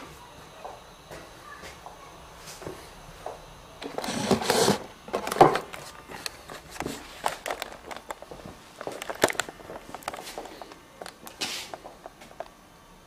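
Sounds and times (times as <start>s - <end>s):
camera handling rustle: 3.9s - 12.2s.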